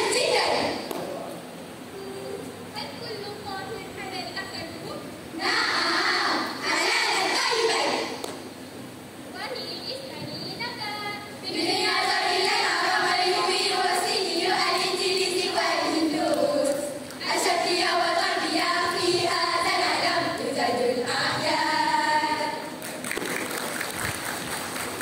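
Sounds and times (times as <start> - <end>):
girls choir singing in unison: 0.0 - 0.9, 5.4 - 8.4, 11.5 - 22.8.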